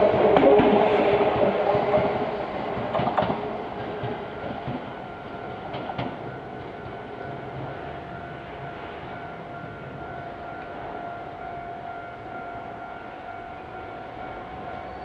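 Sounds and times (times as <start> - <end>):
electric train running: 0.0 - 12.4
wheels clicking over rail joints: 0.1 - 7.7.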